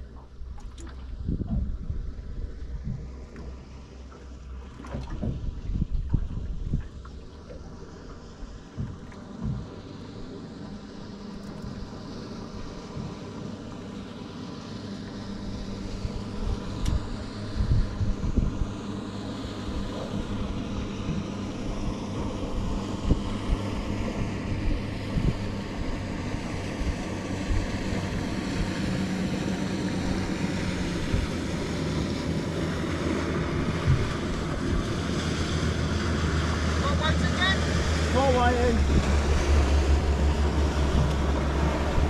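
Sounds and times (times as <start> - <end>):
wind buffeting microphone: 0.0 - 3.3, 4.9 - 9.9, 15.8 - 36.6
motorboat engine: 0.0 - 42.0.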